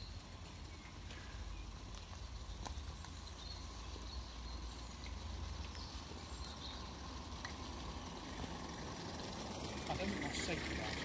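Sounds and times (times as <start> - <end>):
steam locomotives running: 5.2 - 11.0.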